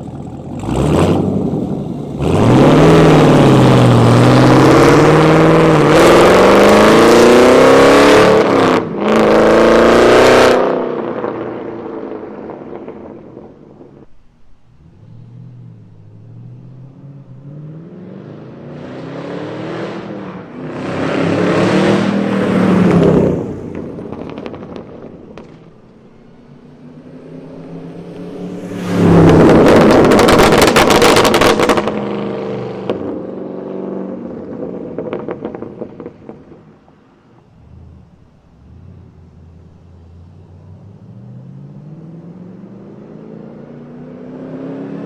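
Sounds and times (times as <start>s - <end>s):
car engine revving hard: 0.5s - 11.3s, 17.5s - 23.5s, 27.0s - 35.6s, 40.8s - 45.0s
exhaust crackling pops: 23.6s - 26.3s, 27.6s - 32.2s, 34.4s - 37.5s.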